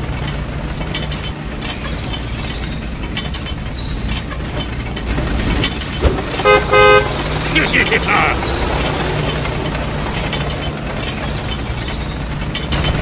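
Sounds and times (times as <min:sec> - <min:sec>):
short horn toots: 0:06.4 - 0:07.1.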